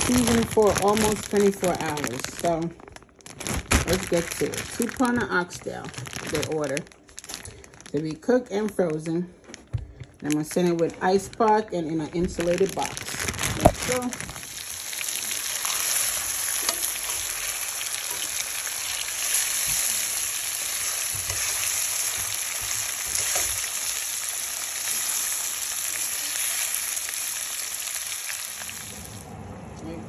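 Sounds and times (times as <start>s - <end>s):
meat sizzling in hot oil: 13.6s - 29.2s.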